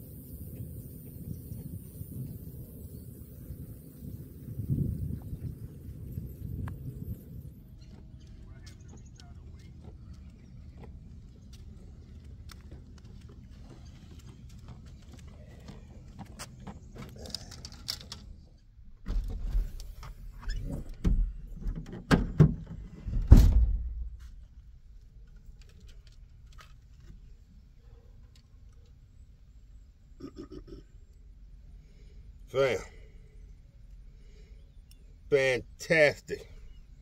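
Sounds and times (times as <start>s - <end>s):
light clicks and clatter: 7.8s - 18.5s, 25.0s - 27.5s.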